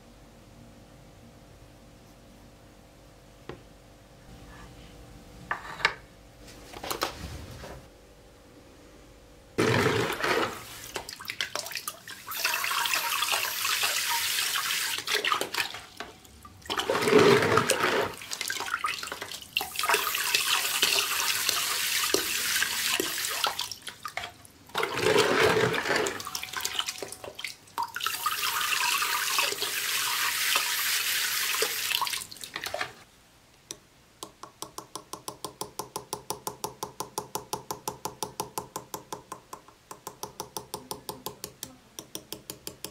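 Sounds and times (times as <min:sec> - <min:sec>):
hammer tapping metal tool: 0:34.2 - 0:42.9.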